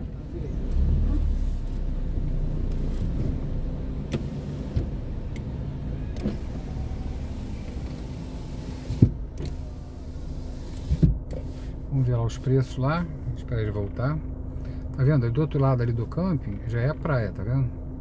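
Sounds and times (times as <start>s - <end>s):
car engine idling: 0.0s - 18.0s
electric window motor: 4.0s - 11.6s
short thump: 9.0s - 9.3s.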